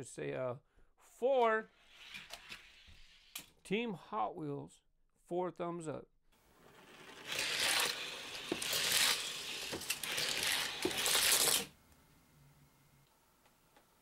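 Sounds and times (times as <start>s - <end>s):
toy cars rattling down plastic track: 6.6s - 11.7s.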